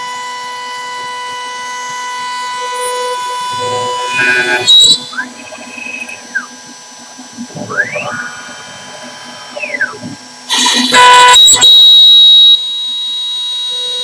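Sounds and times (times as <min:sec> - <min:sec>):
router spindle cutting wood: 0:00.0 - 0:11.8
stepper motors whining: 0:00.0 - 0:14.0
loud cutting burst: 0:01.7 - 0:12.7.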